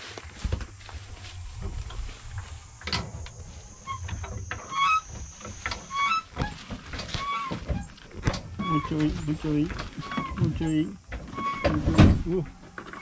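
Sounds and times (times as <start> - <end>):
steady high whine: 0.0 - 11.1
metal knocks and clunks: 2.8 - 13.0.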